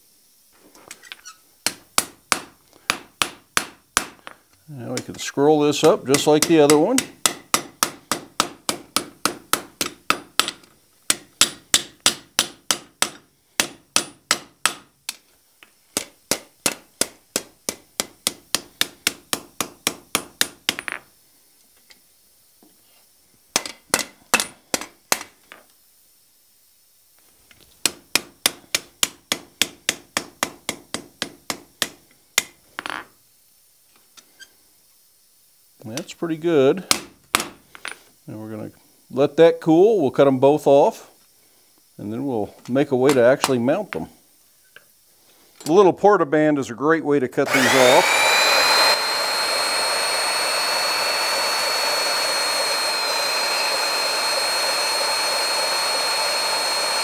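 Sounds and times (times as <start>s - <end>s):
hammer striking hot metal on anvil: 5.8s - 9.4s.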